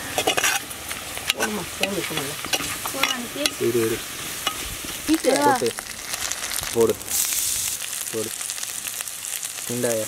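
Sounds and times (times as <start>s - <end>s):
onions sizzling in hot oil: 0.0s - 10.0s
utensil scraping clay pot: 0.2s - 3.7s.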